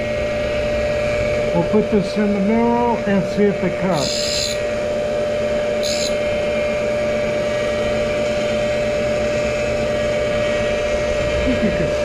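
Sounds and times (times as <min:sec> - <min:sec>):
grinder motor running: 0:00.0 - 0:12.0
grinding wheel hiss: 0:03.8 - 0:04.9, 0:05.5 - 0:11.3.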